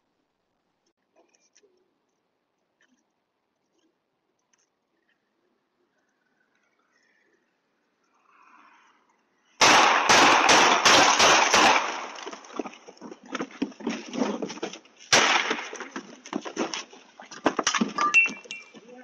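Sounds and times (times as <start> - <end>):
gunshots: 9.6 - 12.4, 15.1 - 15.9.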